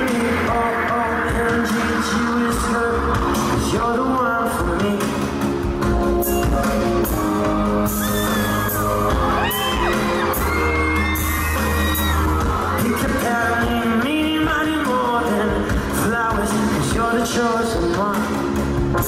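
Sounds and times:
live pop band with singing: 0.0s - 19.0s
fans screaming: 7.8s - 14.1s.

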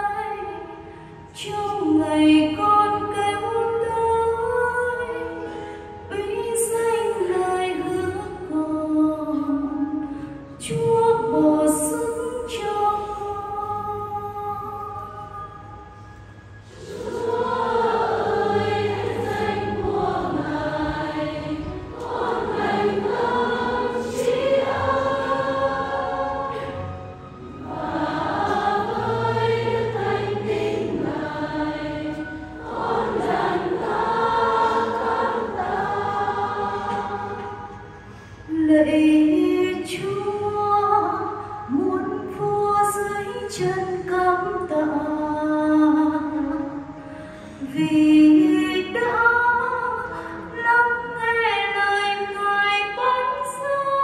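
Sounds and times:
choir singing a hymn: 10.6s - 15.5s, 16.6s - 43.7s.

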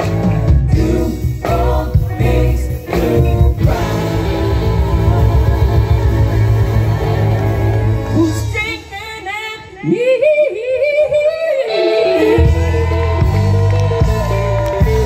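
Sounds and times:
live gospel band with singers: 0.0s - 15.0s
wavering vocal run: 0.7s - 13.7s.

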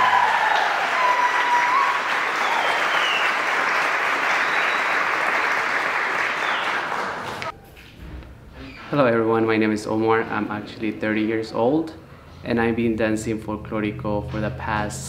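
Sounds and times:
high whistles: 0.0s - 5.5s, 6.2s - 7.5s
audience applauding: 0.0s - 7.5s.

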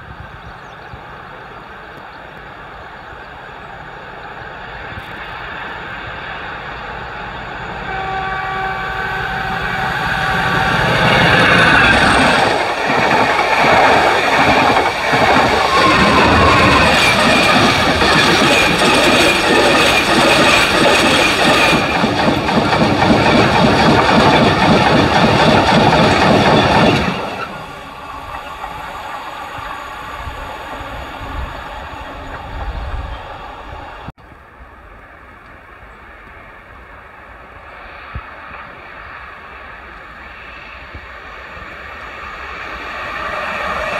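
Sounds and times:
train wagons clattering past: 7.6s - 33.6s.

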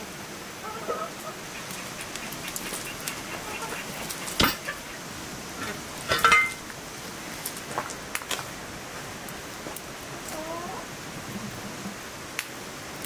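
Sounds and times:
metal clang with ring: 6.2s - 6.6s.

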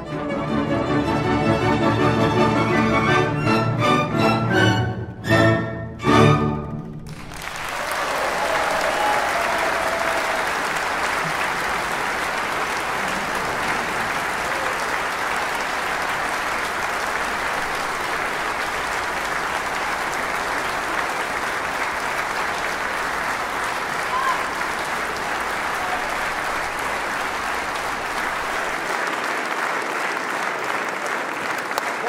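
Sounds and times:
large audience applauding: 6.8s - 32.0s.

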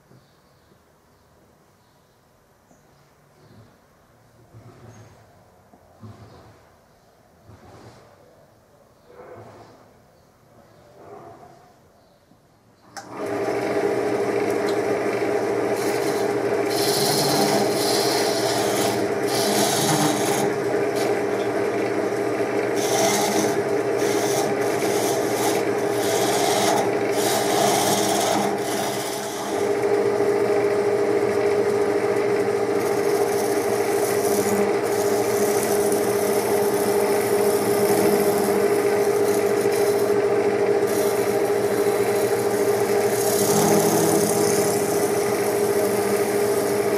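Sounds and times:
chisel scraping spinning wood: 13.0s - 46.9s
wood lathe humming: 13.0s - 46.9s.

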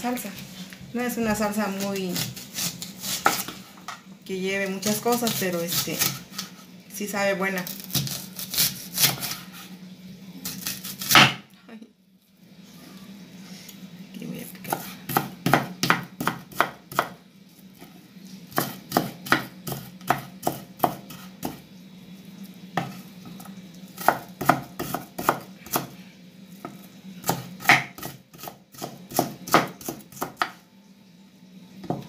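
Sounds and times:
knife chopping on wooden board: 2.2s - 3.6s, 14.7s - 17.2s, 24.0s - 25.9s, 26.6s - 30.6s.

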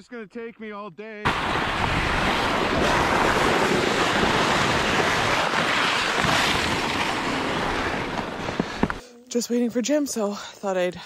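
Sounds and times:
toboggans scraping over icy snow: 1.3s - 9.0s.

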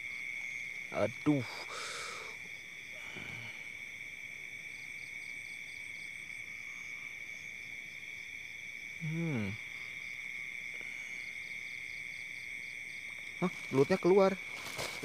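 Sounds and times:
crickets and insects chirping: 0.0s - 15.0s
low voice-like grunt: 9.0s - 9.6s.

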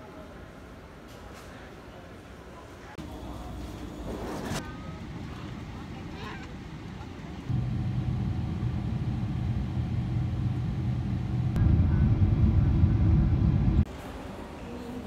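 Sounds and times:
airliner cabin rumble: 3.1s - 13.9s
low hum: 6.6s - 13.9s.

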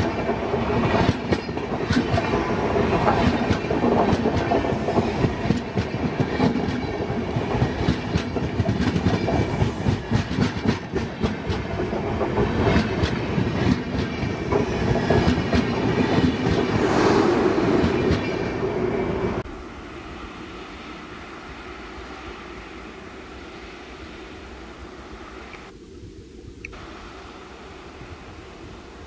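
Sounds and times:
train wheels clattering over joints: 0.0s - 16.8s
train rushing rumble: 0.0s - 25.5s.

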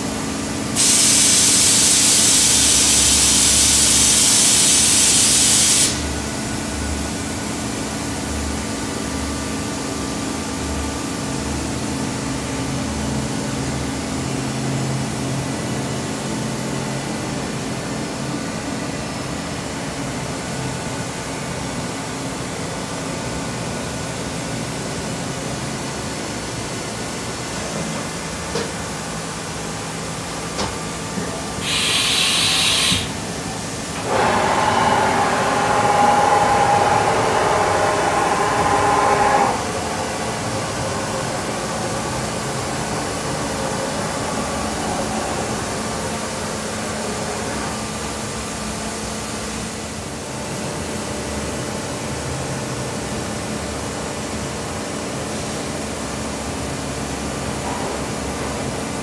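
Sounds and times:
machine table whirring: 31.5s - 45.6s
short hiss: 31.6s - 33.2s
machine humming: 31.6s - 45.8s.

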